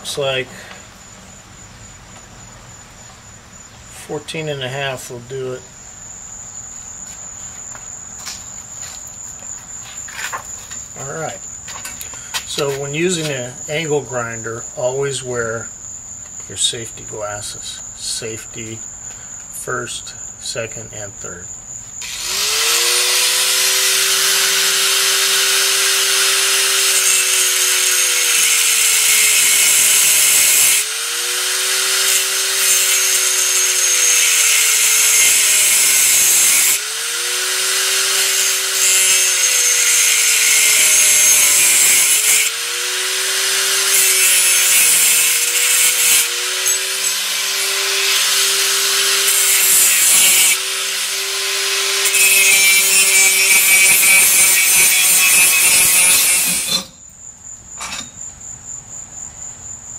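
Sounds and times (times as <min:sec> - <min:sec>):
angle grinder cutting plastic tubing: 0:22.0 - 0:57.0.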